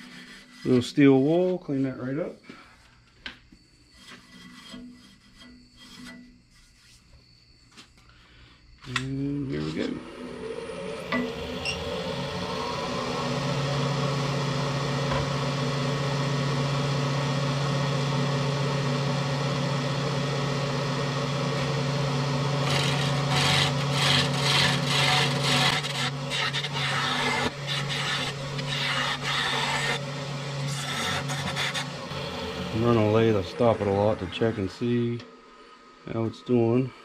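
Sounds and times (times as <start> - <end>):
wood lathe motor humming: 0.0 - 1.3, 9.3 - 36.7
gouge scraping spinning wood: 0.0 - 2.0, 3.8 - 7.0, 21.0 - 35.2.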